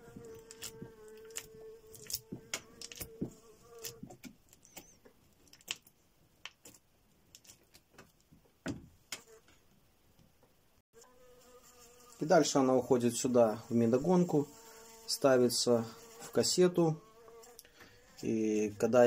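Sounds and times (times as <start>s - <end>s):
flying insect buzzing: 0.0s - 5.0s, 11.0s - 12.5s, 13.4s - 18.3s
fork scraping wax cappings: 0.0s - 5.7s.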